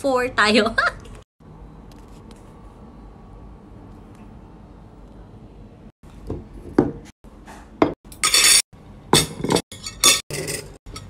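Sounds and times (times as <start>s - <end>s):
cutlery clinking on ceramic plate: 8.1s - 8.6s, 9.2s - 11.0s
rattling clatter of cutlery: 9.2s - 11.0s.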